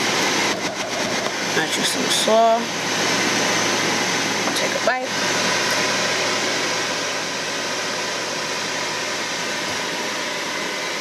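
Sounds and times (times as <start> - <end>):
air fryer fan rushing: 0.0 - 11.0.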